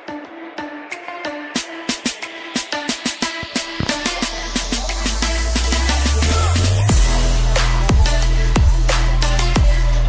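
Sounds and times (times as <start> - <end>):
electronic dance music: 0.0 - 10.0
heavy kick drum: 3.4 - 8.9, 9.6 - 9.9
deep bass line: 3.7 - 10.0.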